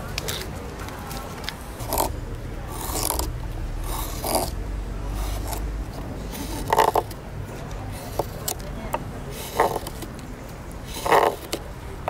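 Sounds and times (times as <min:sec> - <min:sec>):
knife scraping wood: 0:01.8 - 0:07.2, 0:07.9 - 0:08.6, 0:09.3 - 0:10.2, 0:10.8 - 0:11.6.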